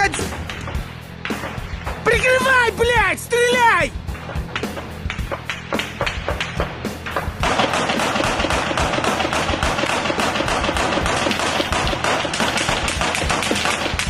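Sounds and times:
automatic gunfire: 7.4s - 14.0s.

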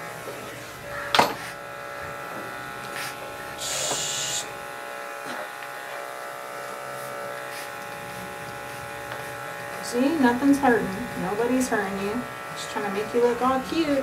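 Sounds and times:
electric clippers humming: 0.0s - 14.0s
short hiss: 3.0s - 4.5s.

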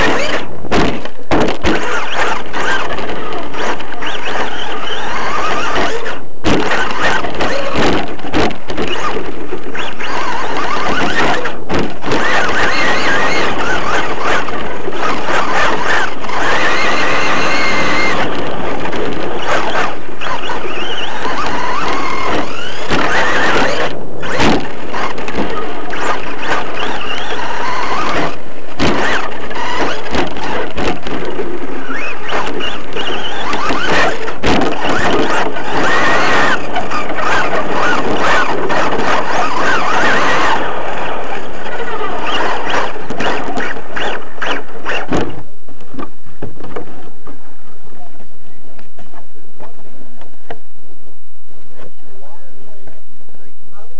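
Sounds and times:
rattling and knocks from bumps: 0.0s - 40.8s
rc car motor whine: 0.0s - 46.1s.

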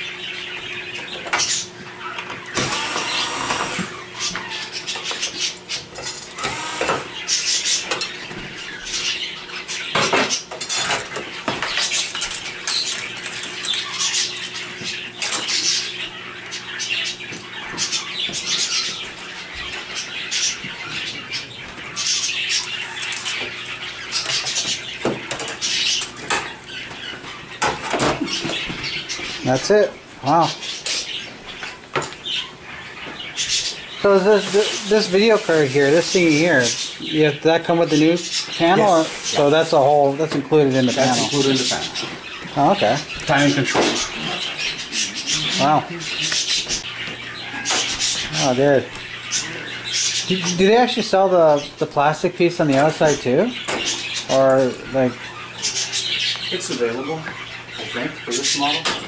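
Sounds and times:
cordless screwdrivers whirring: 2.6s - 3.9s, 6.4s - 7.0s.

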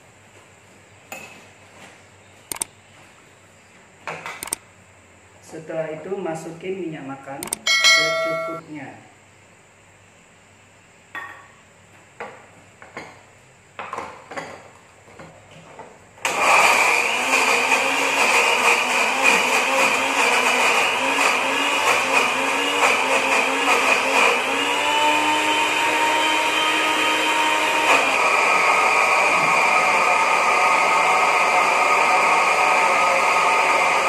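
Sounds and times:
electric blender grinding: 16.2s - 34.0s.

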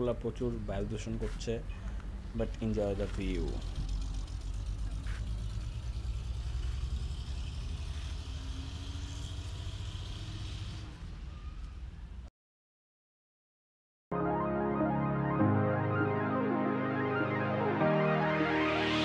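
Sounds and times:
motorcycle engine running: 3.0s - 8.3s.

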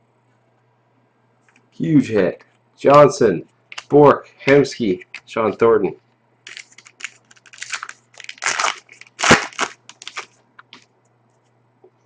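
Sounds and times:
plastic wrapper crinkling: 6.4s - 10.8s.

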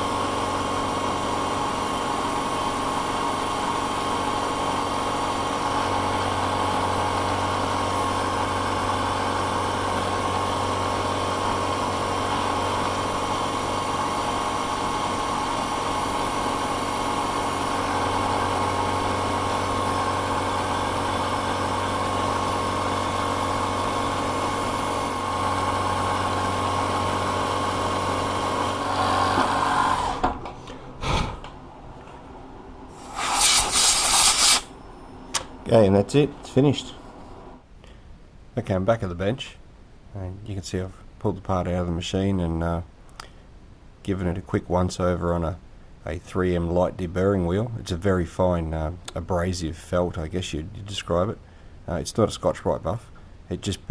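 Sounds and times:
milling machine whining hum: 0.0s - 31.0s
air line hissing: 32.9s - 34.8s.

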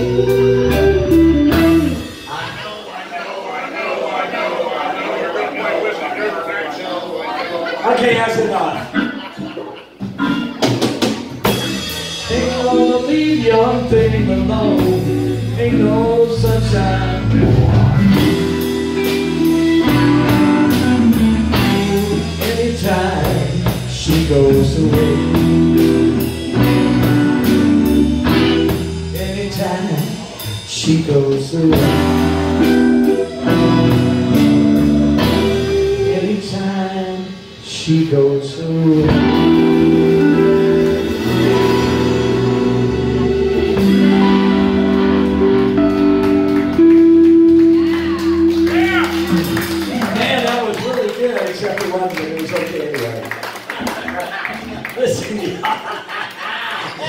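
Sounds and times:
guitars: 0.0s - 2.6s, 8.8s - 51.2s
bass guitar: 0.0s - 2.8s, 10.0s - 50.9s
drum kit beat: 0.0s - 3.0s, 8.0s - 52.0s.

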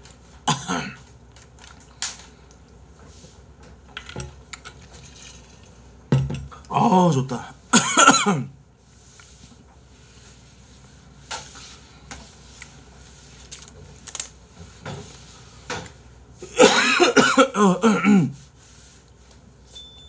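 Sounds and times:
man's wordless vocal sound: 0.5s - 1.0s, 6.6s - 7.6s, 17.5s - 18.4s.

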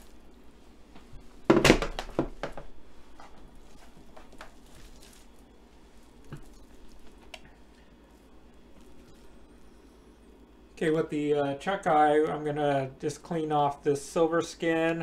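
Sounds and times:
meat thudding onto metal pan: 1.5s - 2.7s.

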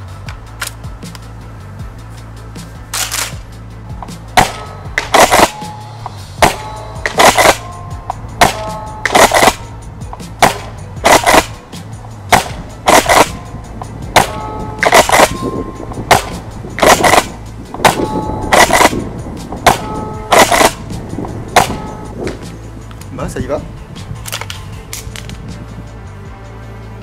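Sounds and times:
airsoft shotgun firing: 4.4s - 5.7s, 6.4s - 7.7s, 8.4s - 9.7s, 10.4s - 11.6s, 12.3s - 13.4s, 14.2s - 15.4s, 16.1s - 19.0s, 19.6s - 20.9s, 21.6s - 21.9s.

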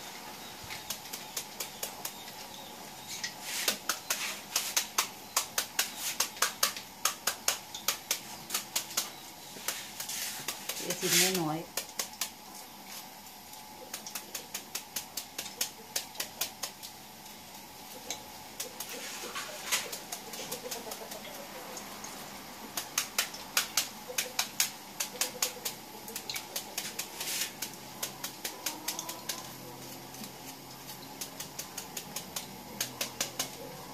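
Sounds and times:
knife chopping: 22.8s - 33.6s.

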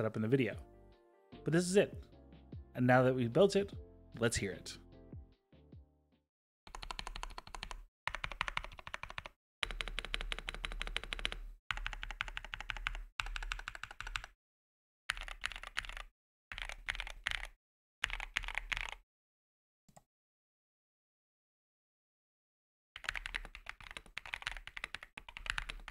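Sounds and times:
keyboard typing: 6.7s - 14.4s, 15.1s - 19.0s, 23.0s - 25.9s.

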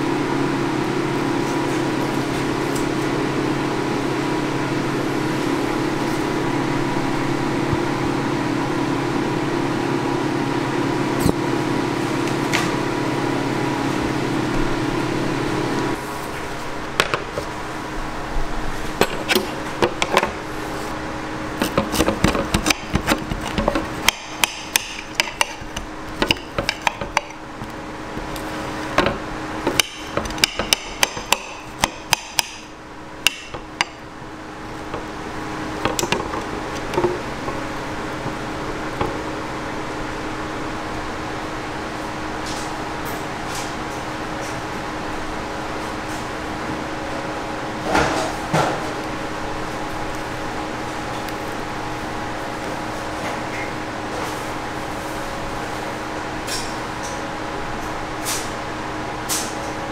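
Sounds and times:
steady machine hum: 0.0s - 59.9s
knife and fork scraping plate: 21.6s - 24.0s.

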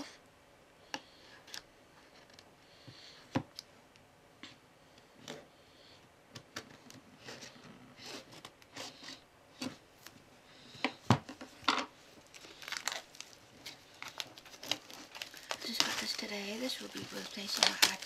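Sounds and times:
plastic shrink-wrap crinkling: 12.2s - 18.0s.

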